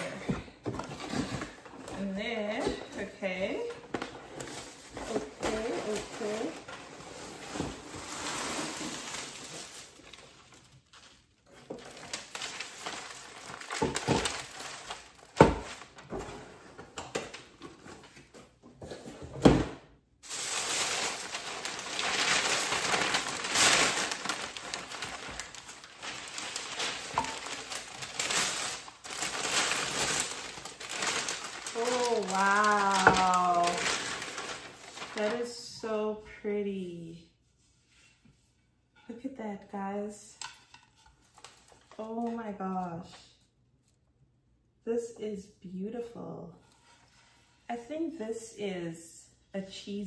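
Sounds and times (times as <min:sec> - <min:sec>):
tissue paper rustling: 0:03.6 - 0:16.6, 0:20.2 - 0:35.8.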